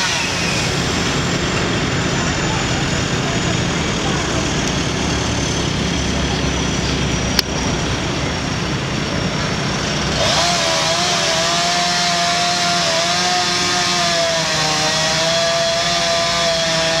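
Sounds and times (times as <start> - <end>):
chainsaw cutting wood: 0.0 - 0.9, 9.8 - 17.0
engine idling rumble: 0.4 - 10.2.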